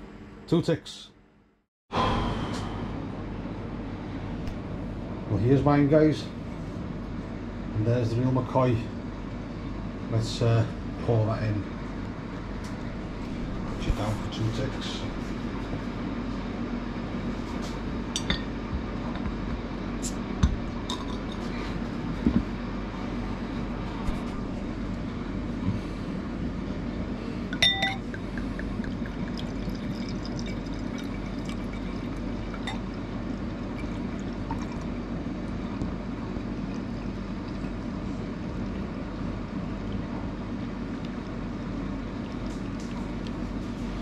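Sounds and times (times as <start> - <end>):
glass clink: 27.6 - 28.2
beer pouring into glass: 28.0 - 35.0.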